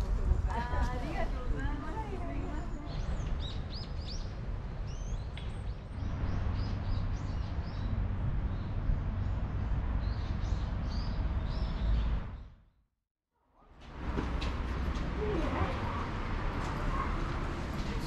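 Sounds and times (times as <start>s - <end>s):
small birds chirping: 1.9s - 12.5s.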